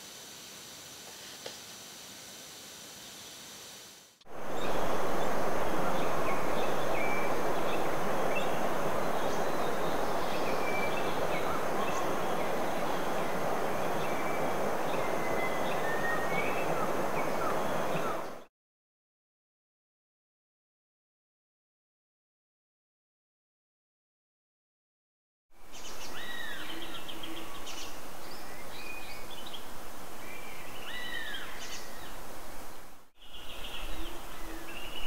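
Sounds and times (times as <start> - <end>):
faint hiss: 0.0 - 18.4
loud steady rushing noise: 4.3 - 18.4.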